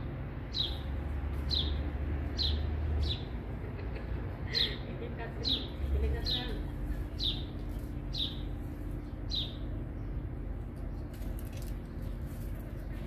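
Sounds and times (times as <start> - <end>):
steady low hum: 0.0 - 13.0
small bird chirping: 5.4 - 10.3.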